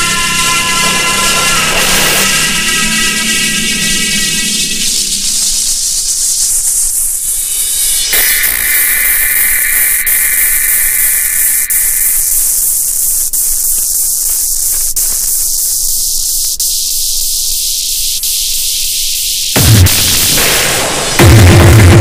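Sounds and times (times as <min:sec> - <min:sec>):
held synth tone: 0:00.0 - 0:05.4
heavy bass: 0:00.0 - 0:08.3, 0:19.6 - 0:22.0
white-noise hiss: 0:04.8 - 0:21.3.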